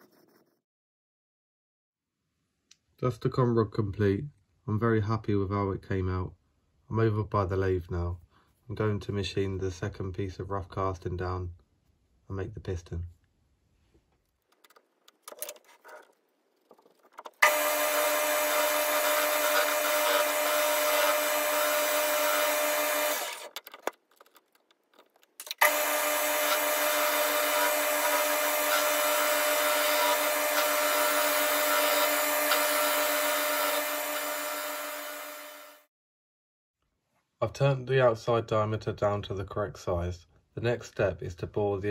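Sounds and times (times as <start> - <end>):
lathe running: 17.4 - 23.5, 25.6 - 35.7.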